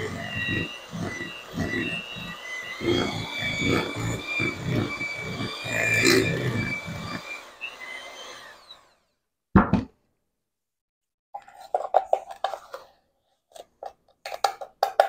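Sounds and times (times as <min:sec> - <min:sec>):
electric hand mixer winding down: 0:00.0 - 0:09.2.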